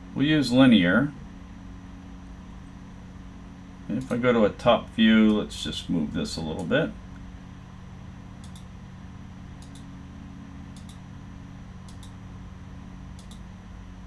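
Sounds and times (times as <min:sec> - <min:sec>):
steady low hum: 0:00.0 - 0:14.0
computer mouse clicks: 0:08.4 - 0:08.7, 0:09.6 - 0:09.9, 0:10.7 - 0:11.0, 0:11.9 - 0:12.2, 0:13.2 - 0:13.4.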